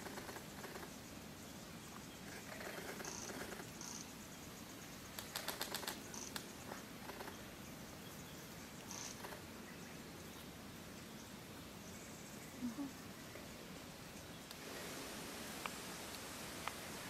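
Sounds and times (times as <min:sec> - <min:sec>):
rapid sharp clicks: 0:05.1 - 0:06.5.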